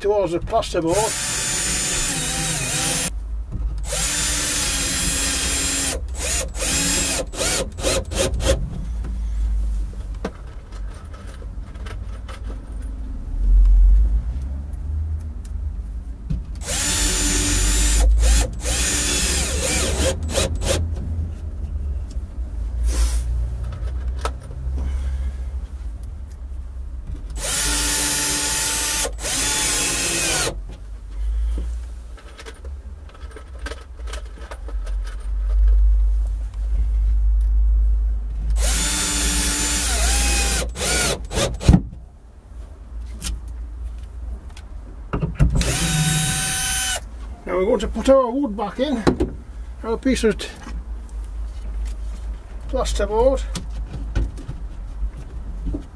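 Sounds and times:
drill motor whine: 1.1 - 3.1, 3.8 - 8.4, 16.6 - 20.8, 27.4 - 30.6, 38.6 - 41.5, 45.6 - 47.0
drill trigger blips: 27.4 - 30.6, 45.6 - 47.0.

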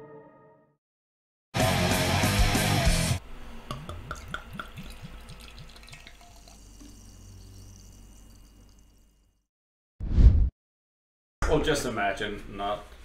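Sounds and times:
liquid drips: 3.7 - 9.4.

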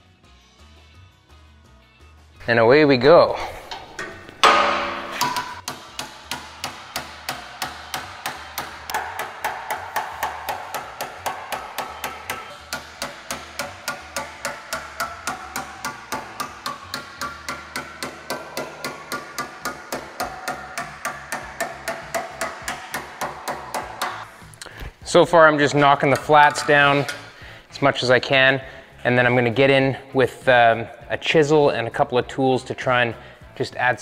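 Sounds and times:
hammer striking sheet metal: 3.4 - 24.3, 25.6 - 27.4.

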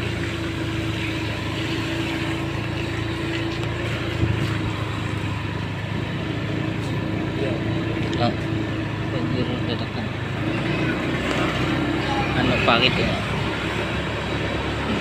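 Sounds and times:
road and wind noise: 0.0 - 15.0
small motorcycle engine cruising: 0.0 - 15.0
motorcycle bump: 1.2 - 6.2.

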